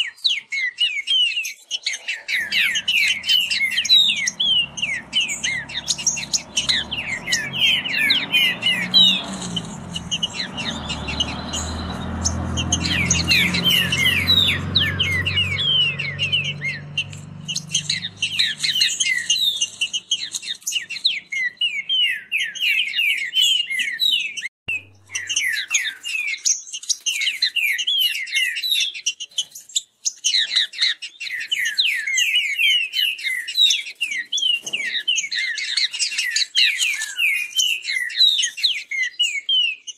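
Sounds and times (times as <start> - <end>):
birds singing rapid phrases: 0.0 - 39.9
low rumble: 2.4 - 19.1.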